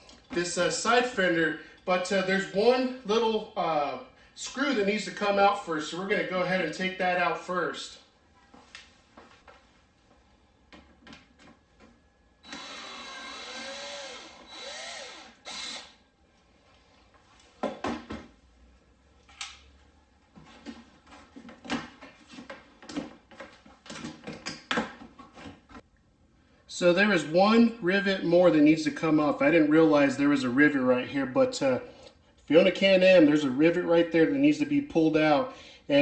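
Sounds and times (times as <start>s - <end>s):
power drill running: 12.4s - 16.0s.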